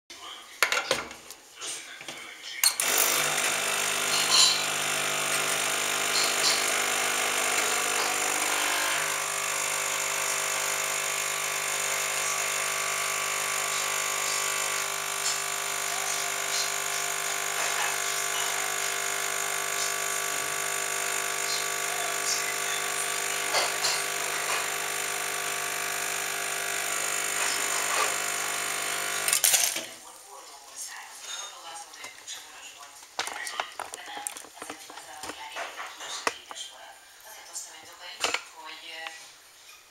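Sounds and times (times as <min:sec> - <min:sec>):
espresso machine pump humming: 0:02.8 - 0:29.4.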